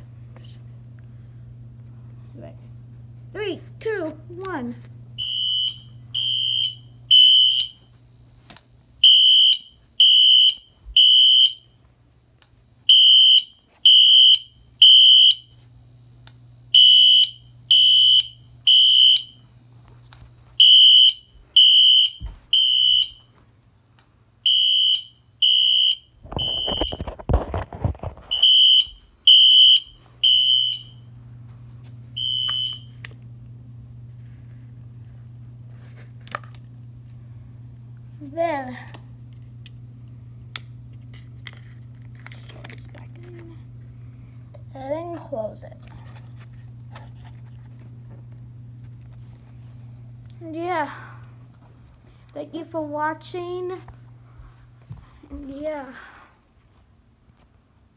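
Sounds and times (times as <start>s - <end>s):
fire alarm high-pitched beeps: 5.2s - 33.1s.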